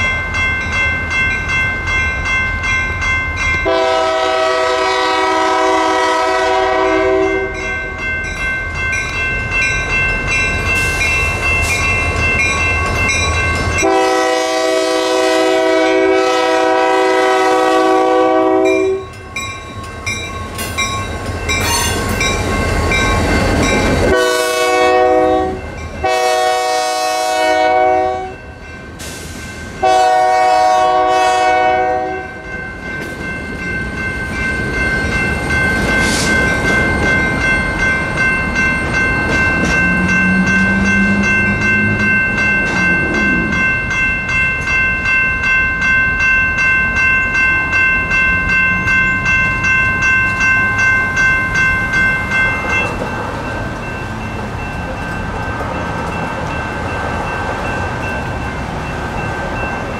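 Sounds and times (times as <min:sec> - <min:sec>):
crossing bells ringing: 0:00.0 - 0:59.9
freight train rumbling over rails: 0:00.0 - 0:59.9
locomotive air horn blasts: 0:03.6 - 0:07.6, 0:13.8 - 0:19.0, 0:24.1 - 0:28.4, 0:29.8 - 0:32.4.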